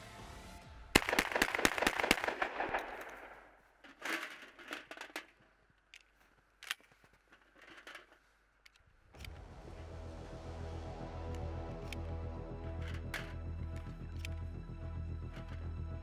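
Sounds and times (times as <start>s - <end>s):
shotgun shots echoing: 1.0s - 3.6s
shells loaded into magazine: 1.0s - 9.4s, 11.3s - 14.6s, 15.2s - 15.7s.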